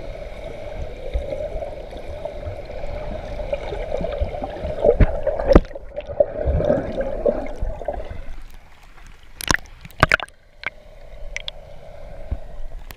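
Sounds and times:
muffled underwater bubbling: 0.0 - 8.5
sharp water splashes: 9.4 - 10.4.

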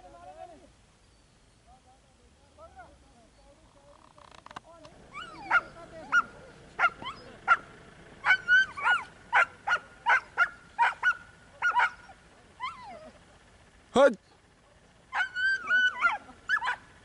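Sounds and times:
dogs yelping and whining: 5.0 - 13.3, 15.1 - 17.0.

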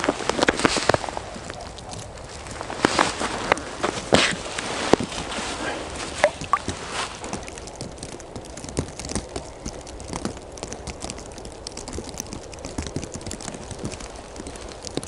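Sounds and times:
winter clothing rustling: 0.0 - 9.3
snow crunching: 2.1 - 7.4.

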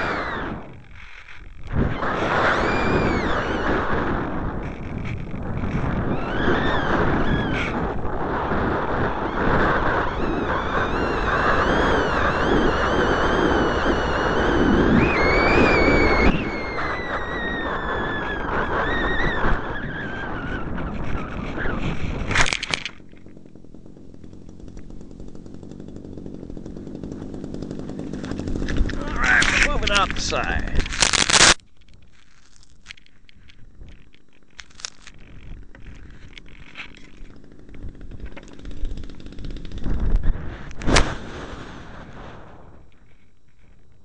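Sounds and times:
clicks and scratches on microphone: 0.0 - 2.7, 3.3 - 8.2, 20.5 - 23.3, 28.0 - 38.9
wind rumble on microphone: 0.0 - 31.3, 32.9 - 44.0
falling whistle: 2.0 - 4.0, 6.1 - 7.8, 9.2 - 21.8
air rushing over glider: 35.6 - 42.9.

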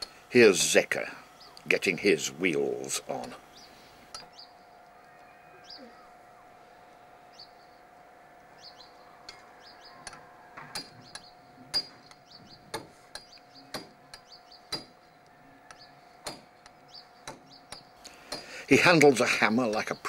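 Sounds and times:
small birds chirping: 0.0 - 20.0
hammer knocking on wire axle: 10.0 - 15.0, 16.2 - 18.5.

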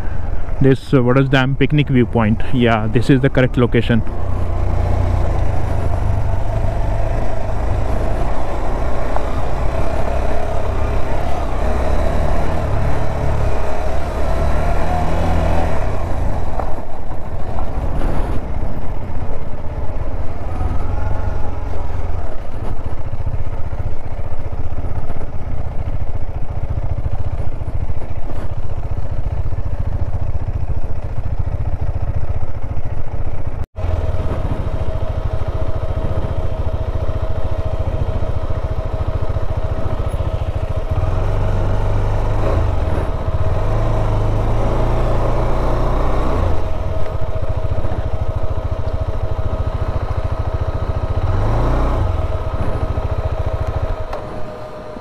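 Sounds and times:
motorcycle engine rumble: 0.0 - 55.0
steady engine hum: 0.0 - 55.0
wind noise: 15.8 - 26.1, 33.9 - 36.9.

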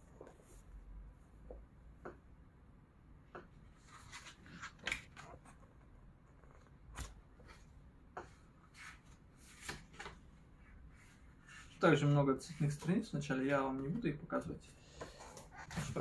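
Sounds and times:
book pages rustling: 3.6 - 10.3, 15.0 - 16.0.

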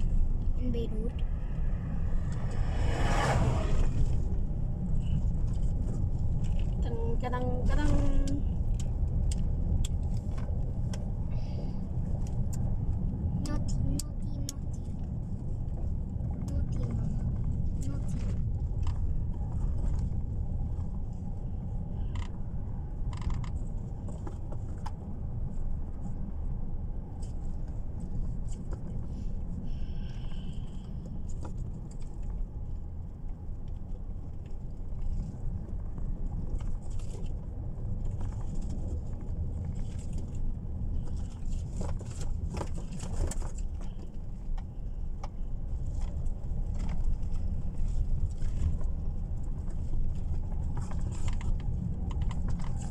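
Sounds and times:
car cabin road and engine rumble: 0.0 - 52.9
light clicks and rattles: 30.5 - 52.9.

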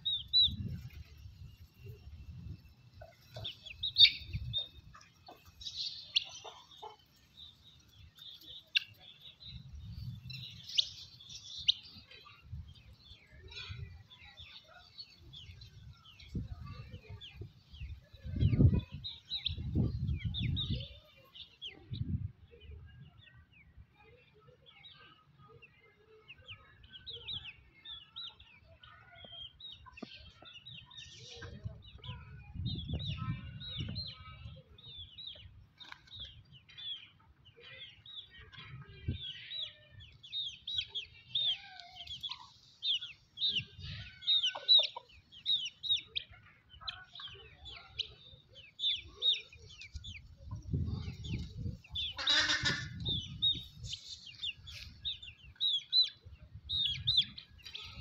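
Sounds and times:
birds chirping: 0.0 - 58.0
harsh bird call: 52.1 - 53.4.

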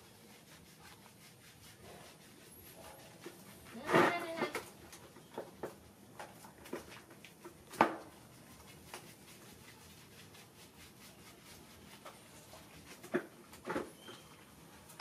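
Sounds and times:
soapy hands wet squishes: 0.0 - 5.2, 5.8 - 14.9.

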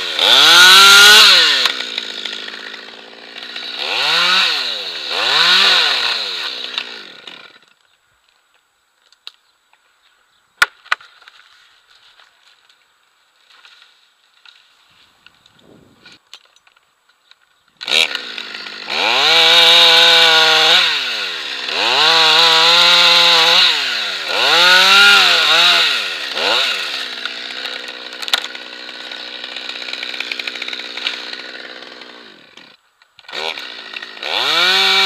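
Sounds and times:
chainsaw revving and idling: 0.0 - 7.7, 17.8 - 35.0.

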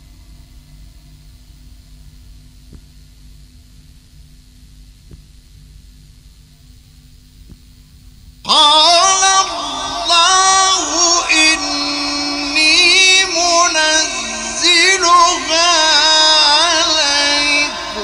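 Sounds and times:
faint hum: 0.0 - 18.0
man reciting melismatic chant: 8.5 - 18.0.

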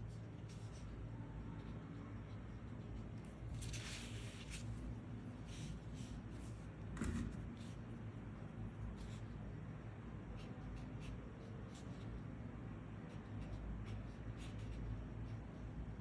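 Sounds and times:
brush pen scratching paper: 0.0 - 6.7, 8.8 - 16.0
low steady hum: 0.0 - 16.0.

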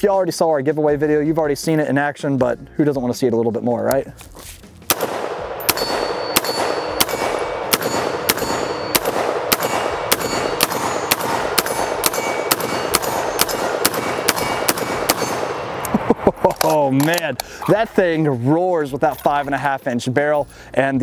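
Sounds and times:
loud gunshots: 4.9 - 15.8
metallic ring of steel target: 4.9 - 15.8.

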